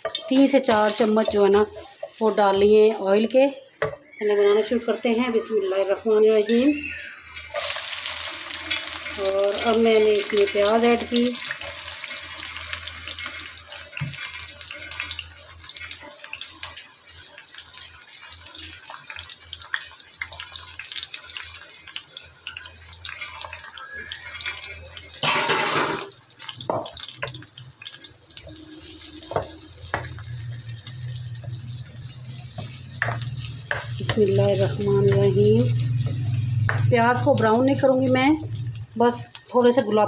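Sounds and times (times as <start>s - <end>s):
onions sizzling in hot oil: 0.0s - 40.0s.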